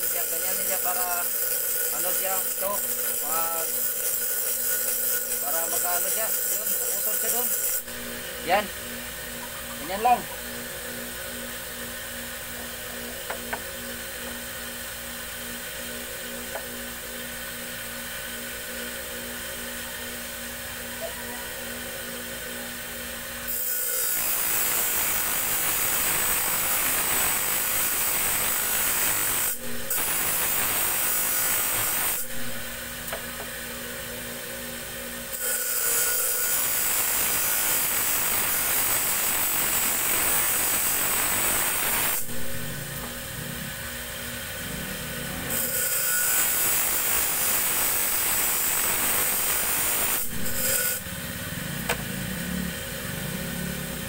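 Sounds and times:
blade grinding on wheel: 0.0s - 8.7s, 35.3s - 43.9s, 44.5s - 54.0s
grinder motor hum: 0.0s - 54.0s.

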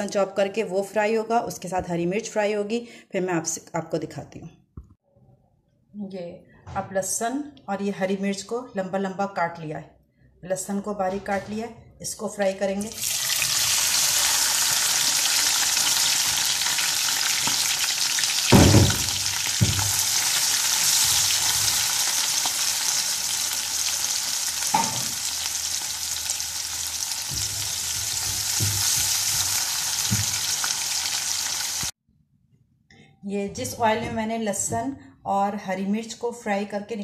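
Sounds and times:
garlic sizzling in hot oil: 12.9s - 32.0s.

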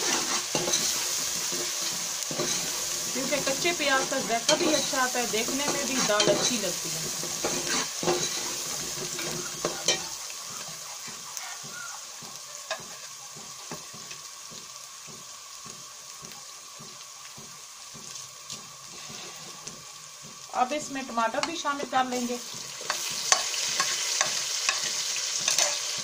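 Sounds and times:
ladle scraping and clinking on pot: 0.0s - 2.8s, 5.5s - 10.2s, 22.8s - 25.9s
onions sizzling in hot oil: 0.0s - 26.0s.

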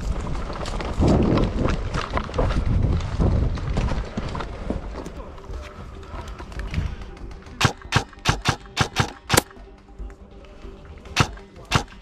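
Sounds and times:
faint background music: 2.2s - 12.0s
airsoft rifle shots: 7.6s - 9.5s, 11.2s - 12.0s.

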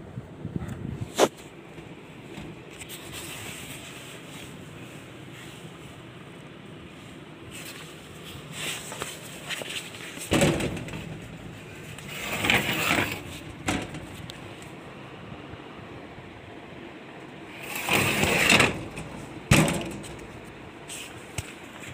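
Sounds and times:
elevator car humming: 1.5s - 21.9s
rubbing thumps: 8.7s - 14.5s.

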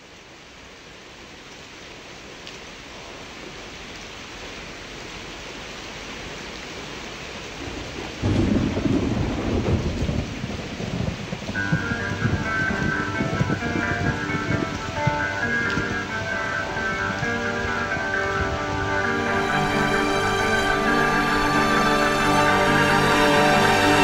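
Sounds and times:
rain hiss: 0.0s - 24.0s
thunder rolling: 7.7s - 24.0s.

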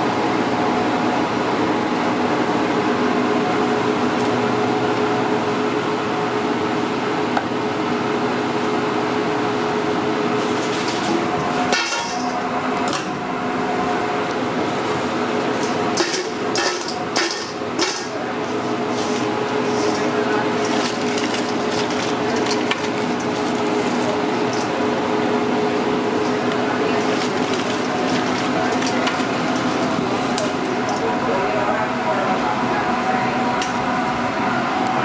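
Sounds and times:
kitchen fan hum: 0.0s - 35.0s
tortilla chips rattling in metal bowl: 19.7s - 25.0s, 26.1s - 30.1s.

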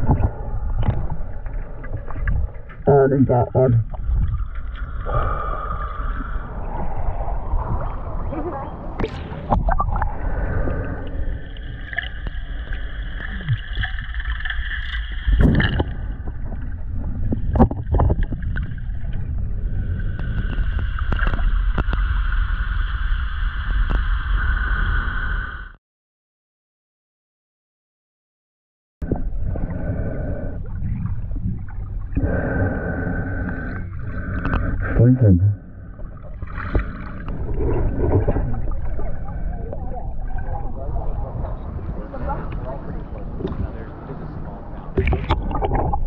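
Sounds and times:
low rumble of water: 0.0s - 25.8s, 29.0s - 46.0s.

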